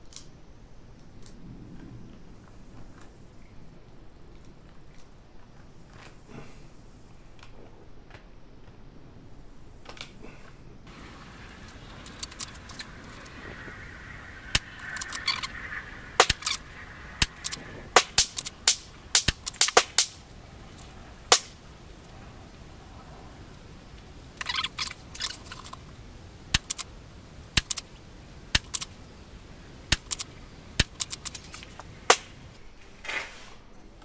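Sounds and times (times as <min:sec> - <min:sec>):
rifle shots: 0:17.2 - 0:20.2.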